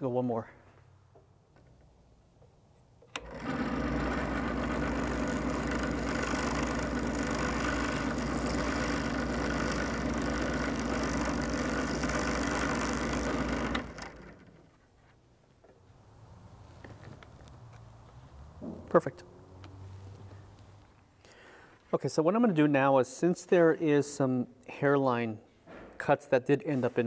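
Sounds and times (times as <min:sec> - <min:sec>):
drill press motor running: 0:03.2 - 0:14.8.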